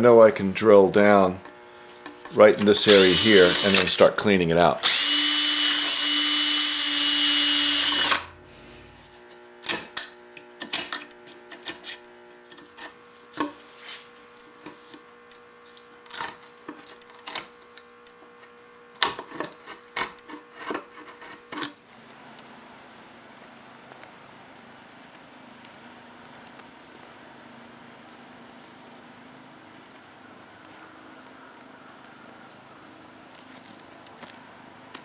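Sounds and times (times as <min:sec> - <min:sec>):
power drill boring into wood: 0:02.6 - 0:04.1, 0:04.8 - 0:08.3.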